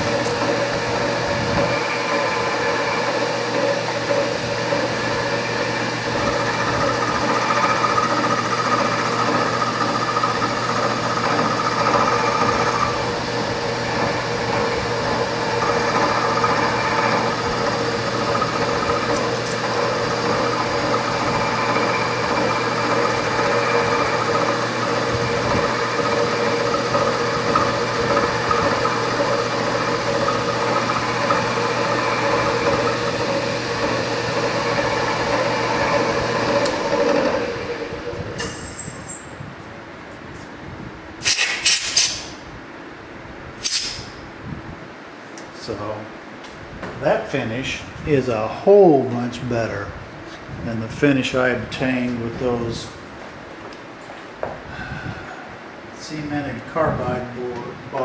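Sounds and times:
high cutting whine: 0:00.0 - 0:39.4
machine spindle humming: 0:00.0 - 0:39.4.

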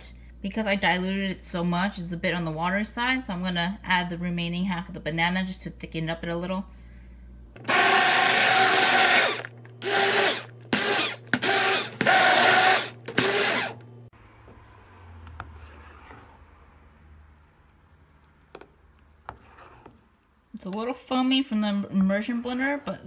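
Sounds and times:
immersion blender motor whine: 0:07.6 - 0:13.9.

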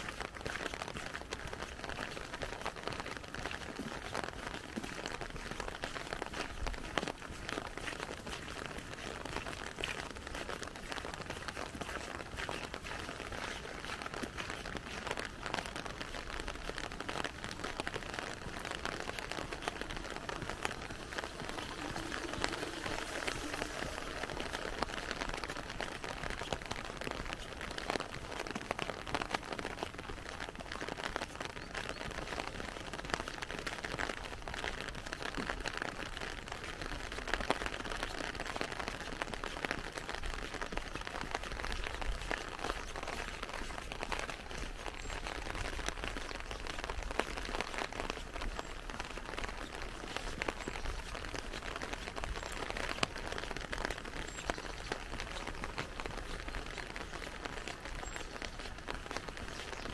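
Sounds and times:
rain pattering on an umbrella: 0:00.0 - 0:59.9.

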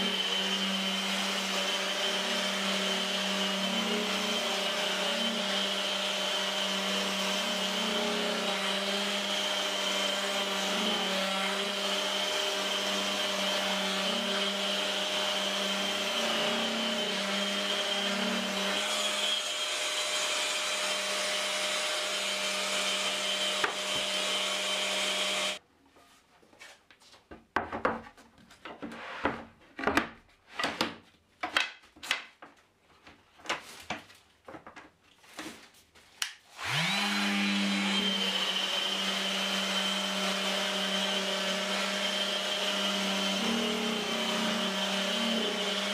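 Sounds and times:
orbital sander humming: 0:00.0 - 0:25.6, 0:36.6 - 0:45.9.

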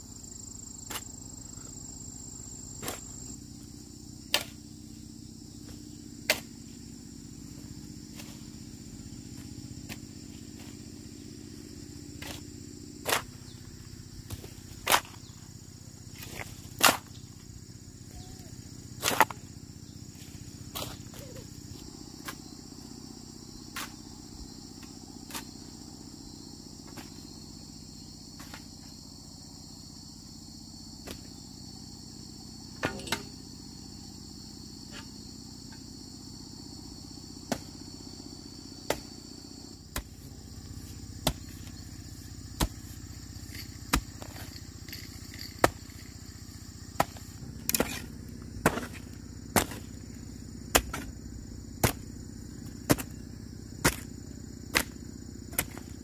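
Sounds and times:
insects chirping: 0:00.0 - 0:56.0
sharp knocks: 0:32.8 - 0:33.4.

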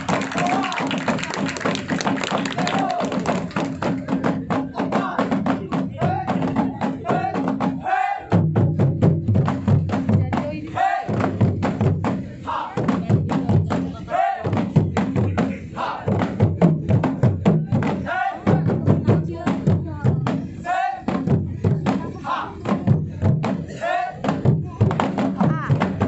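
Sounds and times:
drum ensemble fast rhythm: 0:00.0 - 0:26.0
group shout: 0:00.1 - 0:01.0, 0:02.5 - 0:03.2, 0:07.0 - 0:08.3, 0:10.8 - 0:11.1, 0:12.5 - 0:12.8, 0:14.0 - 0:14.5, 0:15.8 - 0:16.1, 0:18.0 - 0:18.6, 0:20.6 - 0:21.0, 0:22.2 - 0:22.6.

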